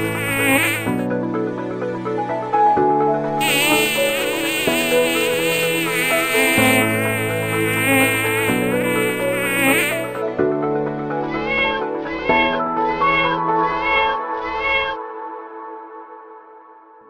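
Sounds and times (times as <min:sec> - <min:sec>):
fly buzzing: 0:00.0 - 0:01.1, 0:03.4 - 0:10.2
background music with slow chords: 0:00.0 - 0:17.0.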